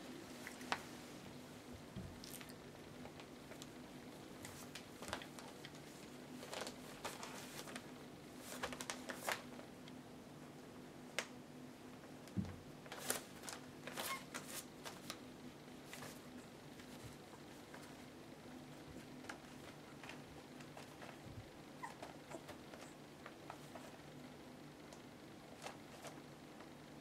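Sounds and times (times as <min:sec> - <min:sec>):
faint steady hum: 0:00.0 - 0:27.0
rustling newspaper: 0:02.2 - 0:09.8, 0:12.8 - 0:21.4.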